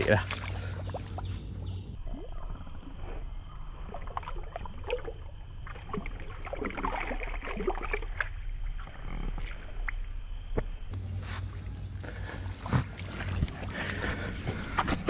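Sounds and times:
footsteps wading through water: 0:00.0 - 0:02.0, 0:03.9 - 0:09.5, 0:10.9 - 0:15.0.

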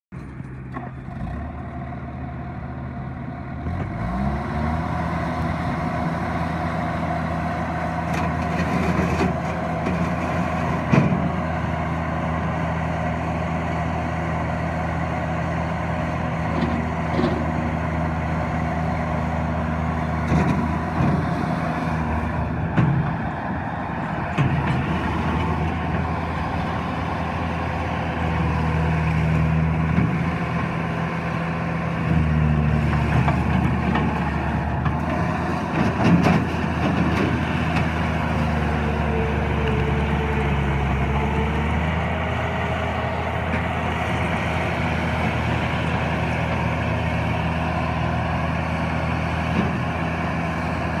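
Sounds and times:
diesel engine running: 0:00.1 - 0:51.0
tracked loader driving: 0:00.1 - 0:51.0.

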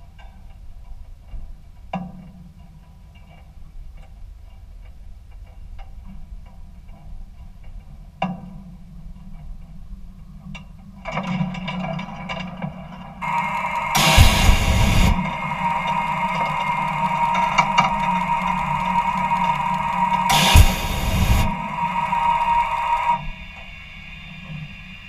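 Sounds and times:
sharp clicks: 0:13.2 - 0:24.7
high whine: 0:13.2 - 0:25.0
jet engine starting up: 0:13.2 - 0:25.0.

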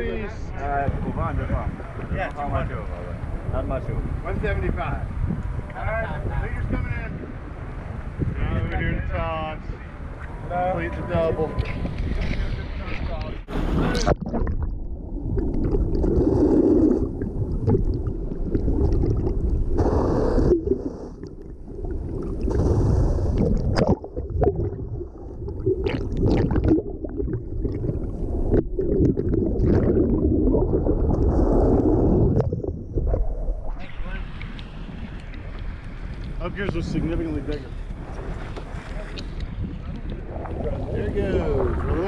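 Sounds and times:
water rushing and gurgling underwater: 0:11.5 - 0:42.0.

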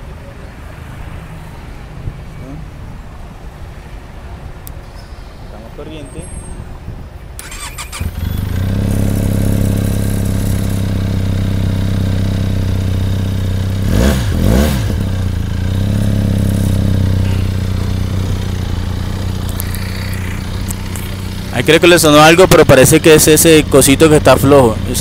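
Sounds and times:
motorcycle engine idling and revving: 0:07.4 - 0:25.0.

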